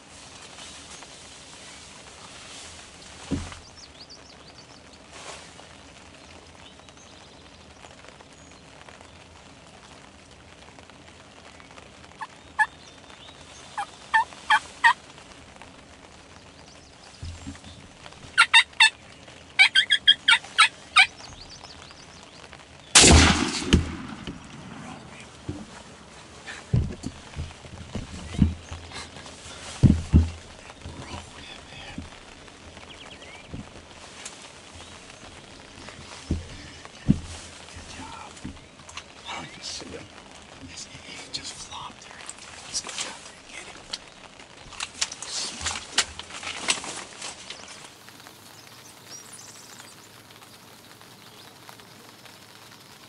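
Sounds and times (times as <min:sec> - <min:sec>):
turkey gobbling: 0:13.8 - 0:15.0, 0:18.3 - 0:19.0, 0:19.6 - 0:21.2
shotgun blast: 0:23.0 - 0:25.0.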